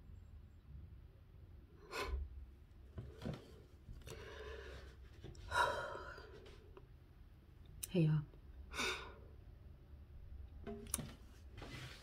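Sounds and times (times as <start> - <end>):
person breathing: 4.0 - 6.6
faint rustles of movement: 11.0 - 12.0.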